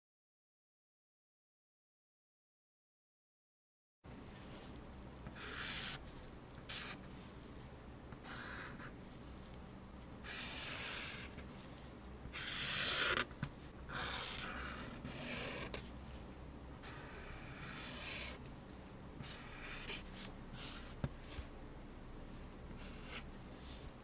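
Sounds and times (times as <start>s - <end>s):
marker drawing on paper: 5.3s - 6.0s, 6.6s - 7.1s, 8.2s - 8.9s, 10.2s - 11.4s, 12.3s - 13.3s, 13.9s - 15.9s, 16.8s - 18.4s, 19.2s - 21.5s, 22.8s - 24.0s.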